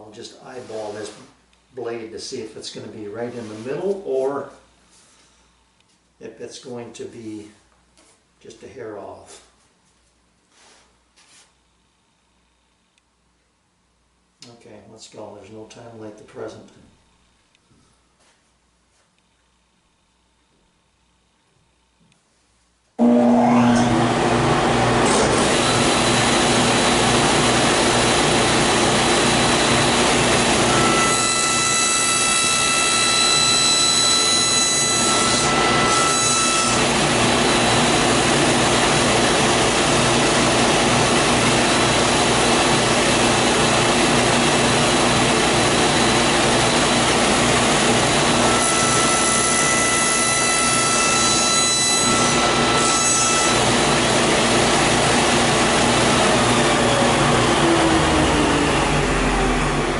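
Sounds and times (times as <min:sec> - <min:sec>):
saw blade cutting wood whine: 0:23.0 - 0:59.9
table saw running: 0:23.0 - 0:59.9.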